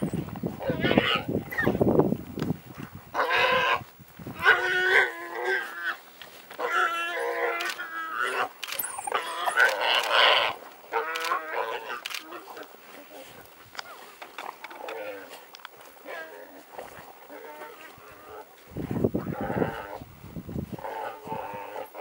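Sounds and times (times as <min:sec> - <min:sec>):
warthog squealing: 0:06.6 - 0:12.2.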